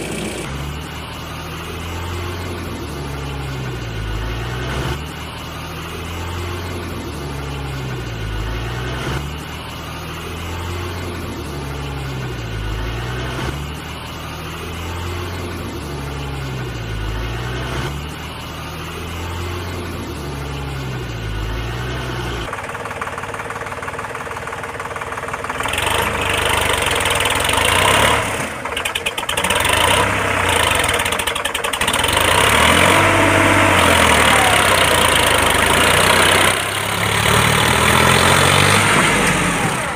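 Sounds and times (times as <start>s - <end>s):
looped engine running: 0.0s - 39.9s
rough loud engine: 0.0s - 39.9s.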